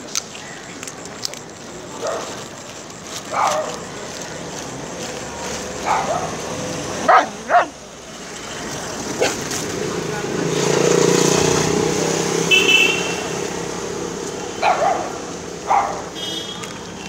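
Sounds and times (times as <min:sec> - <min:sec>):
dog barking and yipping: 0:02.0 - 0:02.4, 0:03.2 - 0:03.9, 0:05.8 - 0:07.8, 0:14.6 - 0:16.2.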